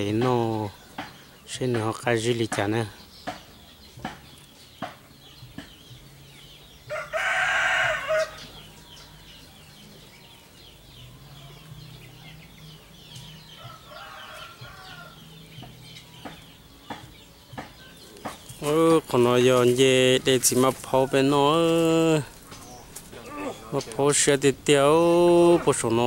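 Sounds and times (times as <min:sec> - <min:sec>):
rooster crowing: 0:06.9 - 0:09.2, 0:13.6 - 0:15.2.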